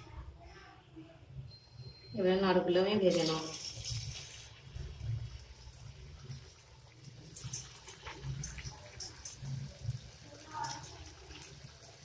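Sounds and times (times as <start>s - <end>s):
deep-frying sizzle and crackles: 3.1s - 12.0s.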